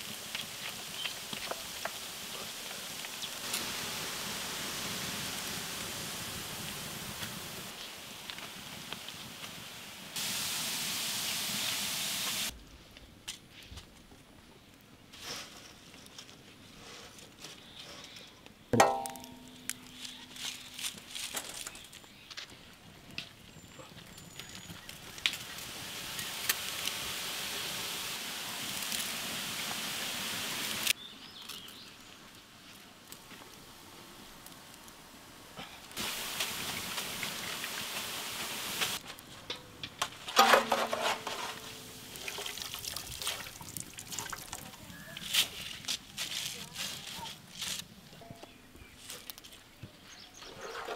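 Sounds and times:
dough sizzling in hot oil: 0.0 - 12.5, 24.6 - 31.0, 36.0 - 39.0
metal cookware clang ringing: 18.8 - 20.0
steel strainer clanging on metal: 18.8 - 20.2, 40.4 - 41.7
strainer scraping and tapping: 40.3 - 41.9.

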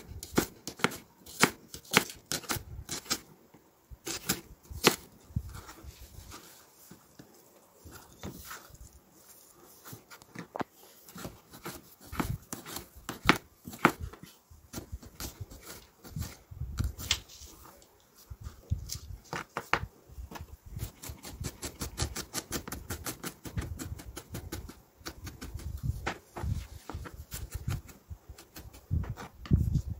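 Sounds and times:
knife chopping on plastic board: 11.2 - 14.0.

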